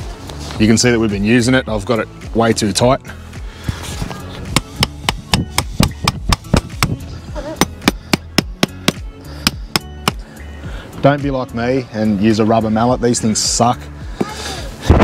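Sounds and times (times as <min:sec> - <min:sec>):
rubber mallet hammering tent peg: 0:04.5 - 0:07.0, 0:07.6 - 0:10.3.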